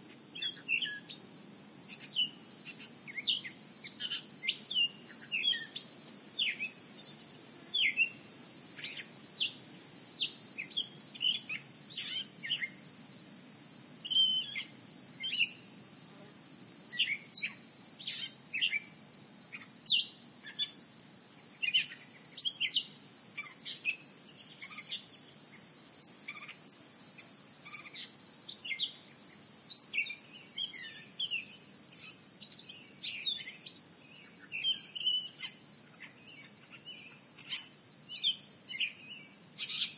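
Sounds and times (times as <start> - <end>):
insects trilling: 0.0 - 39.9
bird chirps: 1.9 - 8.2, 8.8 - 13.1, 14.0 - 15.6, 29.8 - 39.9.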